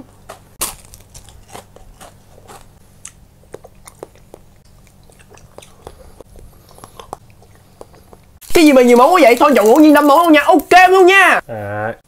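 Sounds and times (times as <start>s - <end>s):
crunching waffle bites: 0.3s - 6.0s.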